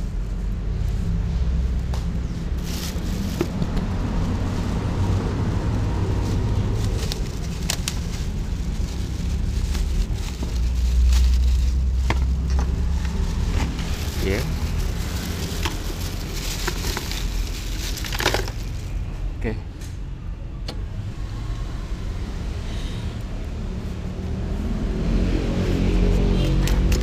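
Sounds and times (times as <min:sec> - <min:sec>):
steady low rumble: 0:00.0 - 0:25.2
plastic bag of ice crackling: 0:02.6 - 0:19.0.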